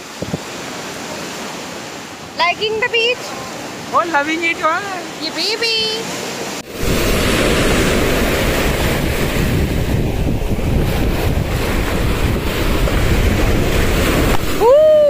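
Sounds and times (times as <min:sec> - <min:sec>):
wind buffeting microphone: 0:00.0 - 0:00.6, 0:06.7 - 0:15.0
sea waves breaking: 0:00.0 - 0:15.0
surf washing over sand: 0:00.0 - 0:15.0.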